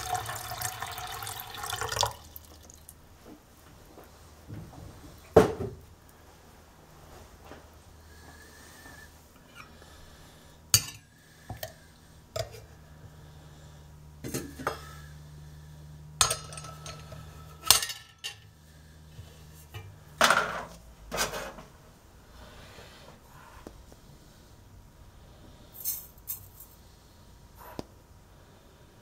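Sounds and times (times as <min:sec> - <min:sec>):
metal parts knocking and clinking: 0:16.2 - 0:18.4.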